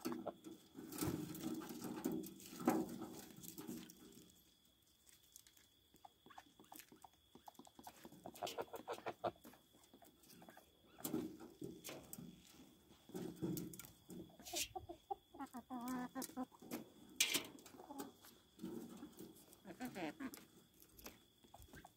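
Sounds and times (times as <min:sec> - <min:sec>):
chickens clucking: 0:00.0 - 0:03.5, 0:05.9 - 0:21.9.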